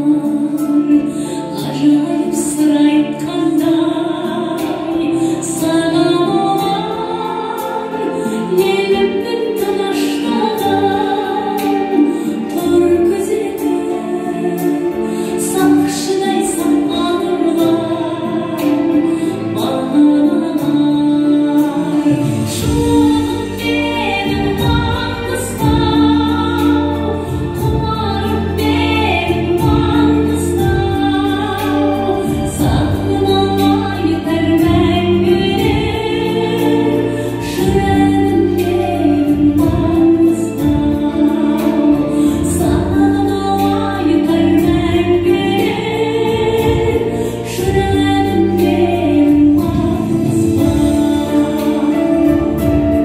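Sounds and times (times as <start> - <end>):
instrumental backing: 0.0 - 53.0
woman singing: 0.0 - 53.0
heavy bass: 22.1 - 53.0.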